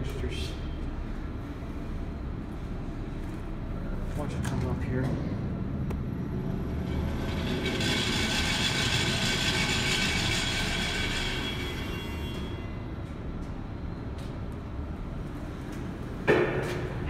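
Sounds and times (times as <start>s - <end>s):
elevator humming: 5.4s - 17.0s.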